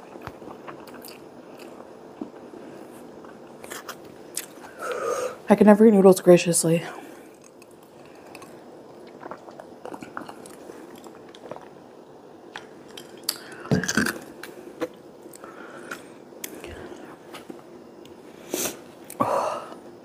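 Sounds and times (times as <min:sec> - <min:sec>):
chewing and mouth noises: 0:00.0 - 0:04.8, 0:07.2 - 0:11.9, 0:12.5 - 0:17.1.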